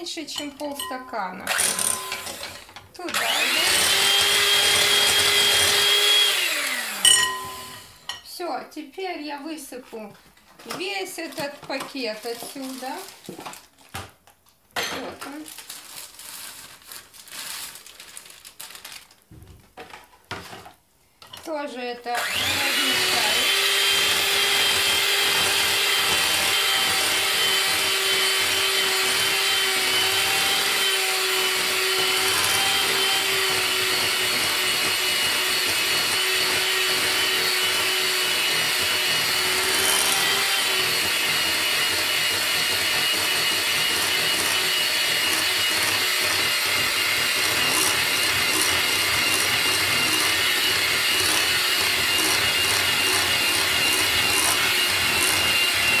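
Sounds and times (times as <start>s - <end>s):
electric hand mixer running: 1.5s - 8.0s, 22.2s - 56.0s.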